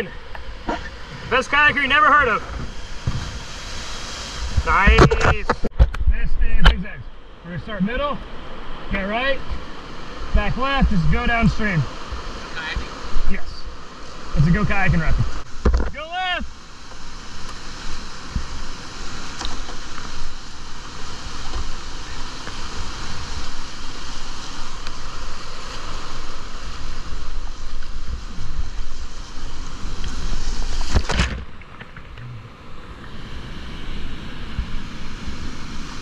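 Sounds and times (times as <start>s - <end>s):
whitewater rushing: 0.0s - 5.7s, 7.2s - 36.0s
wind buffeting microphone: 0.0s - 6.9s.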